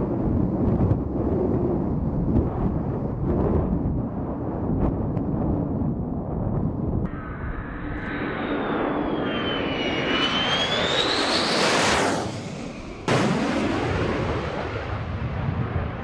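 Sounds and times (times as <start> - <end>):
jet engines roaring overhead: 0.0 - 16.0
high jet whine: 7.1 - 14.7.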